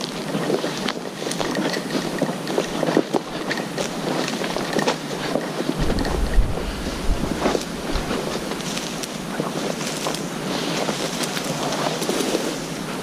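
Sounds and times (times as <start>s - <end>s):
dry bracken crackling and rustling: 0.0s - 13.0s
wind buffeting microphone: 5.8s - 9.4s.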